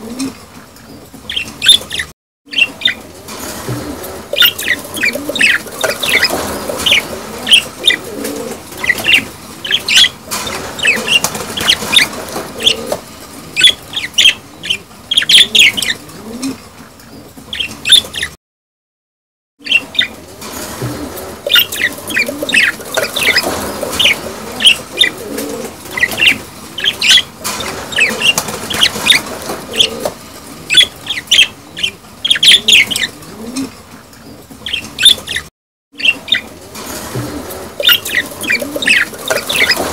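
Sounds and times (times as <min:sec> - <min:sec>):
budgerigars chirping and warbling: 0:01.2 - 0:03.0, 0:04.3 - 0:08.1, 0:08.7 - 0:12.9, 0:13.6 - 0:16.0, 0:17.2 - 0:18.4, 0:19.6 - 0:20.2, 0:21.4 - 0:25.2, 0:25.8 - 0:30.0, 0:30.7 - 0:33.7, 0:34.3 - 0:36.5, 0:37.8 - 0:39.9.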